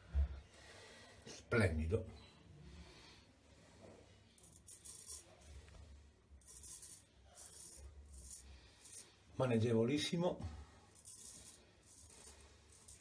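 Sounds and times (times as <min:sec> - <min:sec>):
razor scraping stubble: 0:04.4 - 0:09.2, 0:10.8 - 0:13.0.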